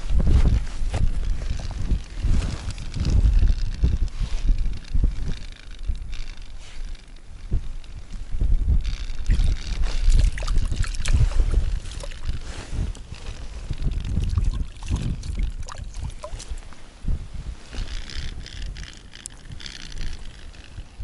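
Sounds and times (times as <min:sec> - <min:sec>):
low microphone bumps: 0:00.0 - 0:19.7.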